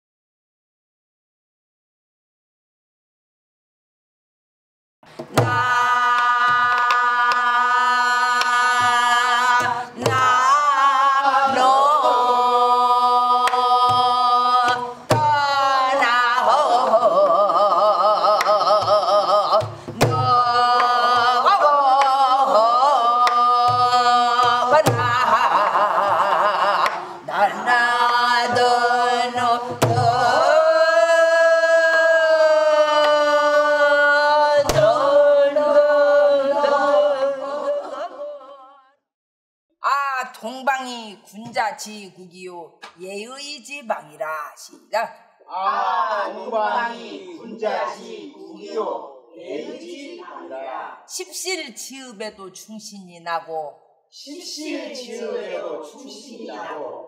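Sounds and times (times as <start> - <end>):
drum beating rhythm: 5.2 - 27.0, 27.6 - 30.8, 34.6 - 35.2
woman singing wordless long notes: 5.3 - 38.9.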